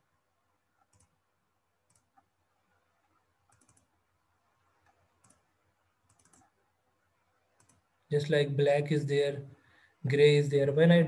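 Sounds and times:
computer mouse clicks: 0.8s - 1.2s, 1.9s - 2.3s, 3.5s - 4.0s, 4.8s - 6.6s, 7.6s - 7.9s.

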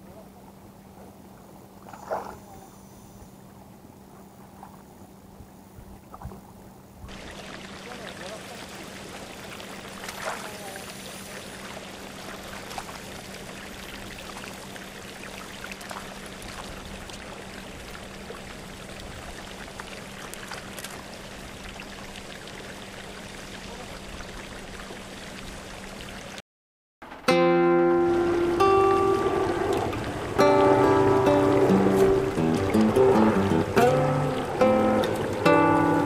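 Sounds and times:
fish splashing in water: 7.1s - 23.3s
rushing water: 7.1s - 26.4s, 27.4s - 36.0s
low hum: 27.1s - 36.0s
music: 27.2s - 36.0s.

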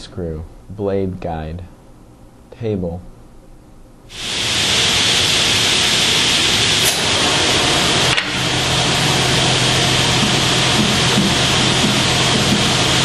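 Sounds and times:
band saw whirring: 4.2s - 13.0s.

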